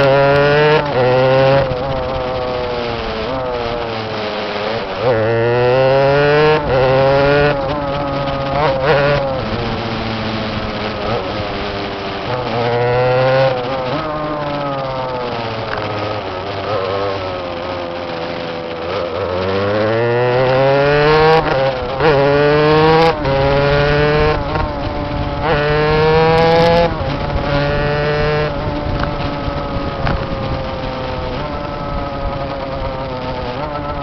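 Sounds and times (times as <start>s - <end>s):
go-kart engine revving: 0.0s - 34.0s.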